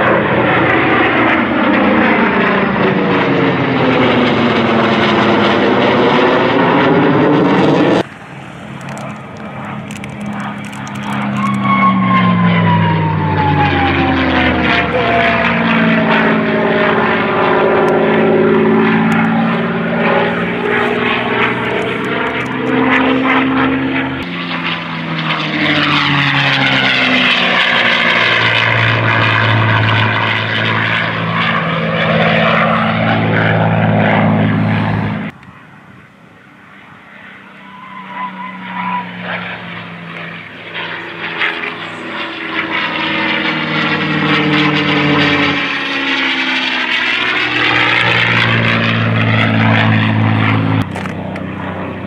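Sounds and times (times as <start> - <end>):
propeller aircraft engine passing: 0.0 - 52.0.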